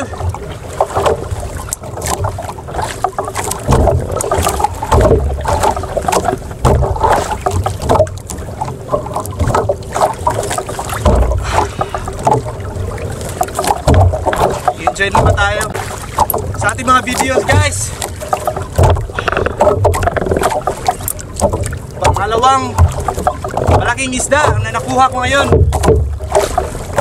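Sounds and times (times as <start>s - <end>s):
water slapping against boat: 0.0s - 27.0s
wind rumbling on microphone: 0.0s - 27.0s
knocks: 3.5s - 5.4s, 11.0s - 12.5s, 13.6s - 16.5s, 18.4s - 24.7s.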